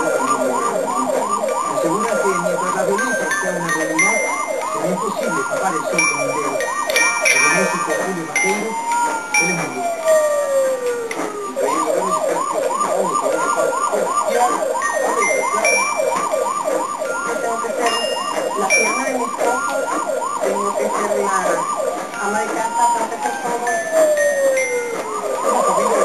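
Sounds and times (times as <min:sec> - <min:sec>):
siren yelping and wailing: 0:00.0 - 0:26.0.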